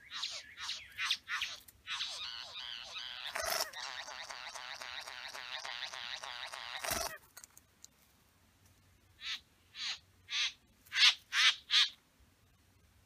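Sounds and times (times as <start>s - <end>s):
bird harsh calls: 0.0s - 7.2s, 9.2s - 12.0s.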